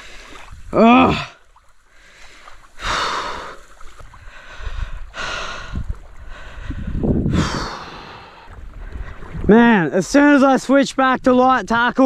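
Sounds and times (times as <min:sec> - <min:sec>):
man breathing heavily and sighing: 0:04.2 - 0:09.2.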